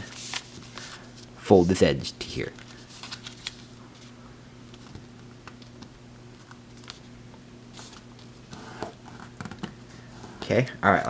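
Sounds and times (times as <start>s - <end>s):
paper rustling and creasing: 0.0s - 5.7s, 6.4s - 7.1s, 7.7s - 9.6s
faint steady hum: 0.0s - 11.0s.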